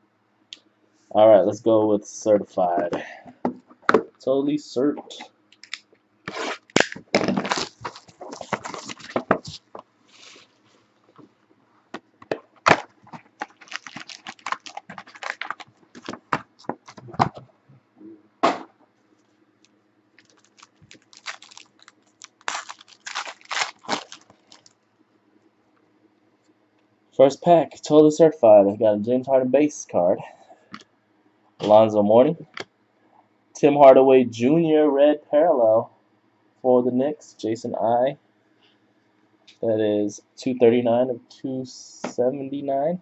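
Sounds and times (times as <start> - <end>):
plastic wrap crinkling: 5.6 - 11.3, 12.7 - 17.4, 20.2 - 24.8.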